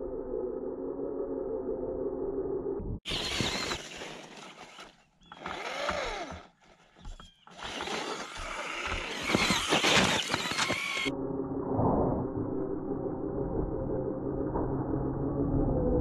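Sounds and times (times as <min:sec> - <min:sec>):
rc truck motor whining: 0:03.1 - 0:11.1
tyres churning through snow: 0:03.1 - 0:11.1.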